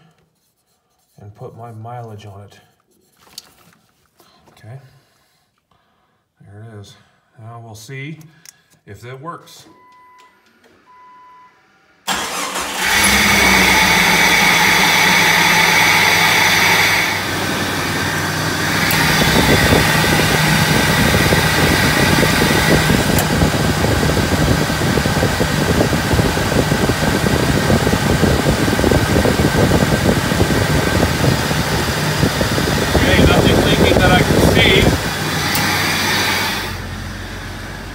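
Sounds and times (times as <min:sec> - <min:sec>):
car engine starting and idling: 0:10.0 - 0:37.9.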